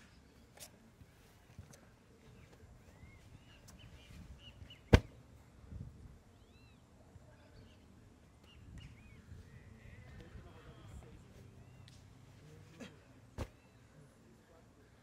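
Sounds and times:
birds chirping: 1.7s - 5.2s, 6.3s - 14.1s.

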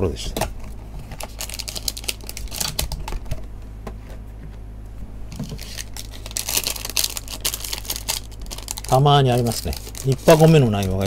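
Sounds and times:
card packs clicking and crinkling: 0.6s - 3.4s, 5.3s - 11.0s.

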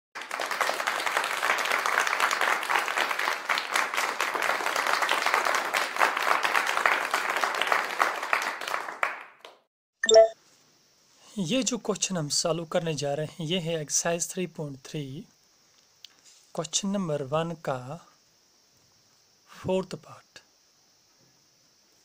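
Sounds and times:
crowd applauding: 0.2s - 9.6s.

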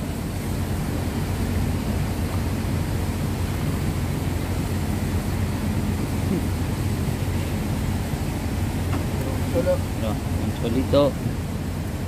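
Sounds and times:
large ship engines humming: 0.0s - 12.0s.

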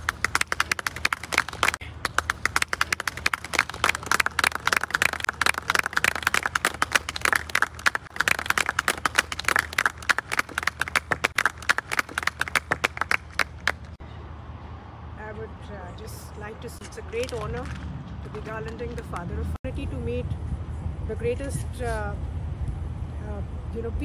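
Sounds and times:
crowd clapping: 0.0s - 14.0s.

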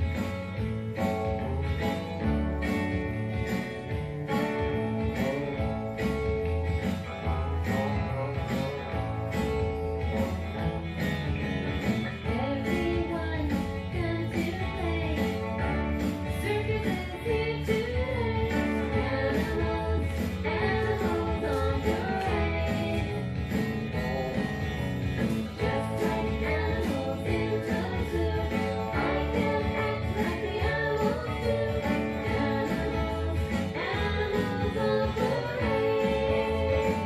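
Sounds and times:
plucked guitar with steady beat: 0.0s - 37.0s
person singing: 12.2s - 37.0s.

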